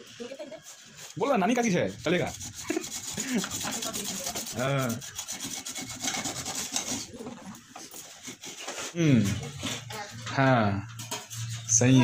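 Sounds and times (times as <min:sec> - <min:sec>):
rubbing and scraping: 0:00.6 - 0:12.0
short pitched vocal sound: 0:09.0 - 0:09.4.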